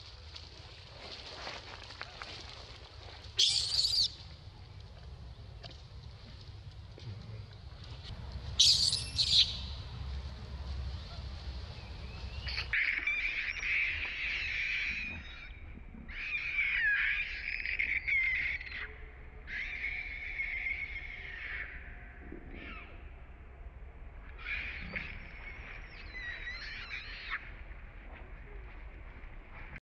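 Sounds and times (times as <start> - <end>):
baby monkey screaming: 3.4 - 4.1, 16.1 - 18.9, 19.5 - 21.8.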